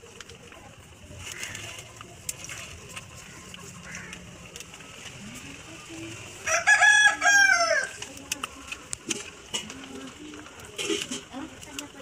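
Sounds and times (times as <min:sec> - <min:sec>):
rooster crowing: 0:06.4 - 0:08.0.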